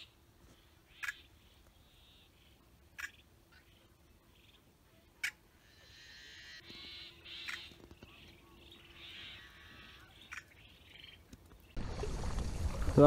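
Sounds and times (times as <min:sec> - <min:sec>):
blackbird harsh buzzy calls: 0:08.7 - 0:11.2.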